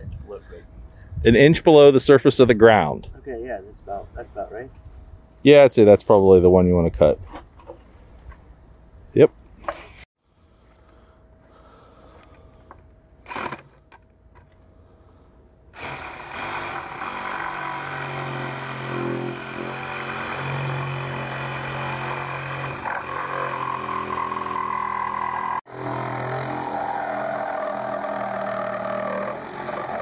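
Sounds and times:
reciprocating saw cutting plastic pipe: 0:13.3 - 0:13.7, 0:15.8 - 0:30.0.

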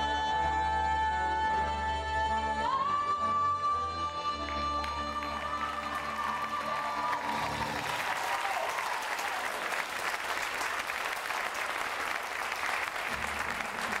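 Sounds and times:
audience applauding: 0:04.8 - 0:14.0.

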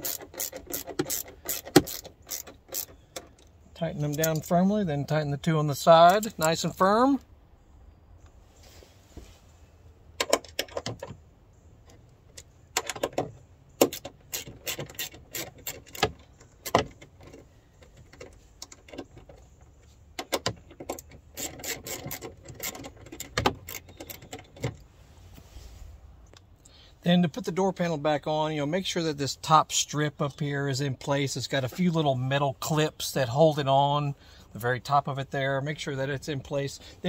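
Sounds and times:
ratchet clicking: 0:00.0 - 0:03.5, 0:13.8 - 0:16.8.

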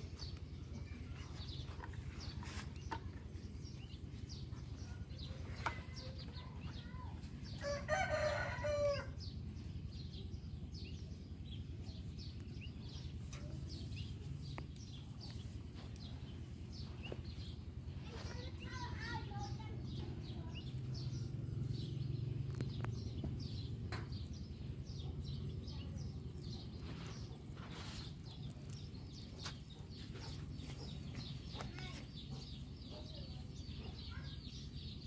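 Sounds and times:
small birds chirping: 0:00.0 - 0:35.0
steady low rumble: 0:03.1 - 0:35.0
rooster crowing: 0:07.6 - 0:09.2.

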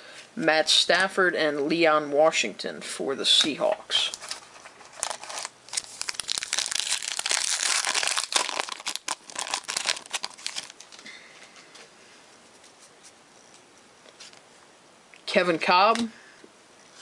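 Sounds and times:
foil wrapper crinkling: 0:04.0 - 0:11.1.

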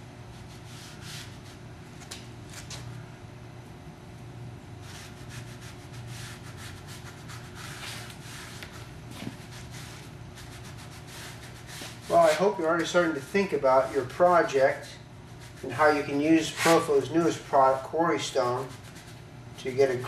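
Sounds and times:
sponge rubbing on textured panel: 0:00.4 - 0:01.6, 0:04.8 - 0:13.0, 0:15.3 - 0:19.2.

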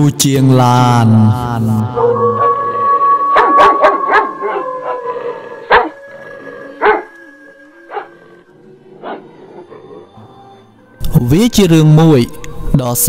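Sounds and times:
music drone: 0:01.7 - 0:13.0
dog barking: 0:02.0 - 0:06.0, 0:06.8 - 0:07.1, 0:07.9 - 0:08.1.

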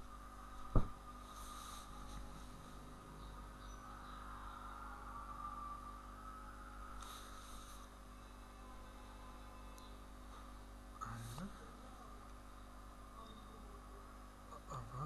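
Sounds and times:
low electrical hum: 0:00.0 - 0:15.0
soft breath or sniff: 0:01.2 - 0:02.9, 0:07.0 - 0:08.0.

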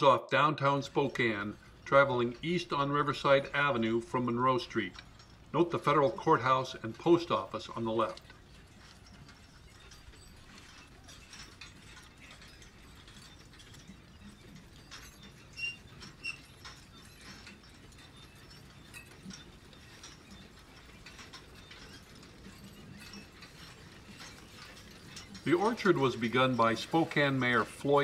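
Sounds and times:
faint mechanical clicking and whirring: 0:00.0 - 0:28.0.

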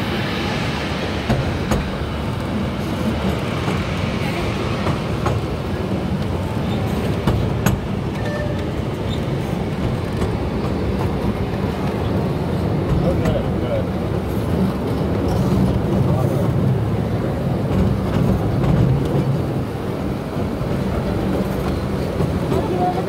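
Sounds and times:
ride train rumbling on rails: 0:00.0 - 0:23.0
sharp clacks on rails: 0:04.7 - 0:16.7, 0:17.6 - 0:19.5.

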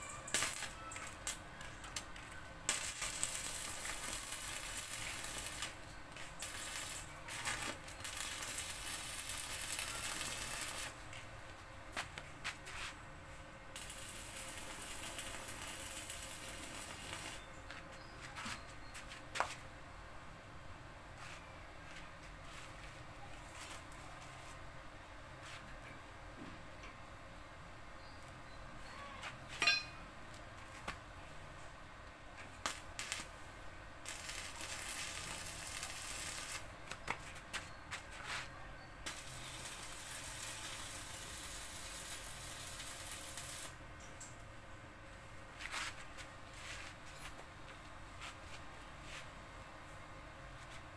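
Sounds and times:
electrode tapping metal: 0:00.3 - 0:02.0, 0:02.7 - 0:05.8, 0:07.8 - 0:10.9, 0:13.8 - 0:17.4, 0:34.0 - 0:36.6, 0:39.1 - 0:43.7
welding arc crackling: 0:00.3 - 0:02.1, 0:02.7 - 0:11.0, 0:13.8 - 0:17.4, 0:32.6 - 0:33.3, 0:34.0 - 0:36.7, 0:39.0 - 0:43.8.

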